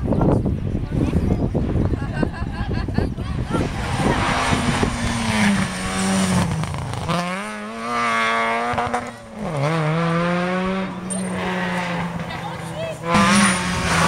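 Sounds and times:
rally car engine revving: 0:03.4 - 0:14.0.

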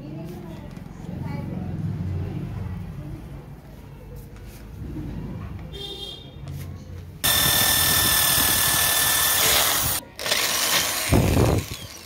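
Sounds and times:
electric drill whining into steel: 0:07.2 - 0:12.0.

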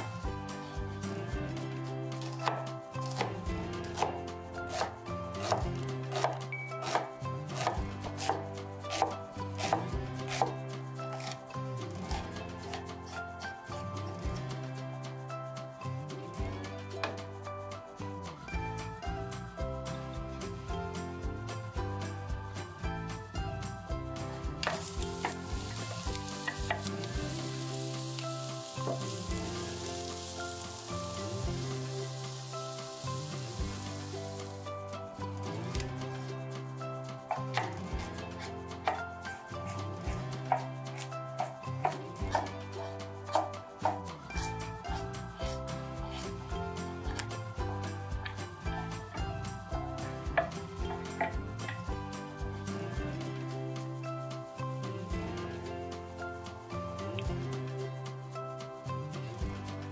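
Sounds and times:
soft background music: 0:00.0 - 0:59.9
knife chopping vegetables: 0:02.2 - 0:11.4, 0:24.7 - 0:27.6
food sizzling in oil: 0:24.7 - 0:34.7.

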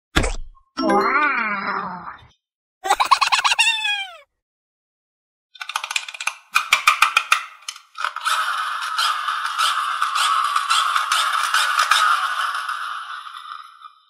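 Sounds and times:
clockwork toy clicking and rattling: 0:05.6 - 0:14.0.

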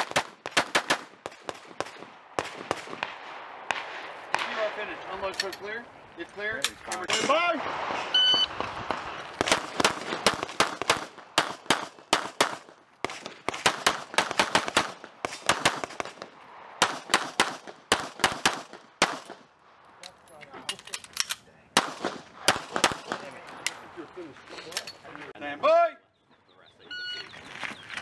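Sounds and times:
pistol shots: 0:00.0 - 0:05.2, 0:07.1 - 0:19.5, 0:21.8 - 0:23.3.

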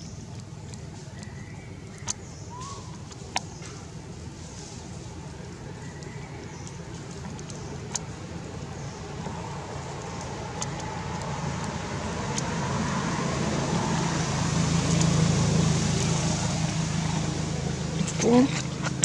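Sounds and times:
faint clicks: 0:00.0 - 0:04.0, 0:04.8 - 0:12.6
low motor hum: 0:00.0 - 0:19.0.

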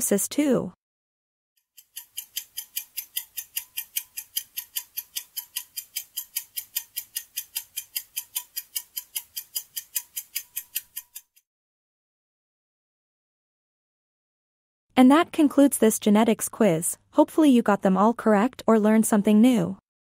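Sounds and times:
fast clock ticking: 0:01.7 - 0:11.4.

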